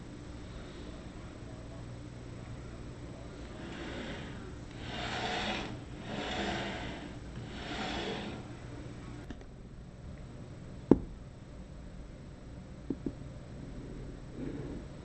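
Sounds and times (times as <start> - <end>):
carriage sliding along metal rods: 3.4 - 8.5.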